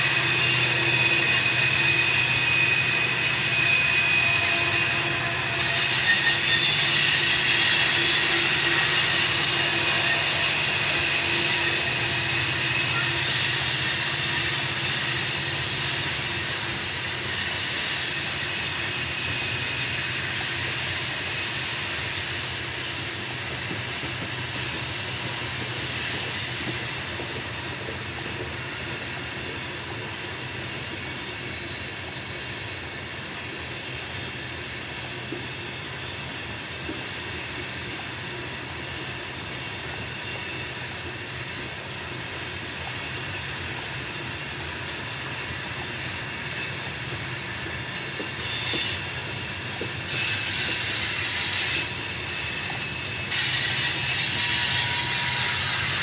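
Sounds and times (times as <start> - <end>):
rail cars rumbling: 0.0 - 56.0
train wheel squeal: 0.0 - 56.0.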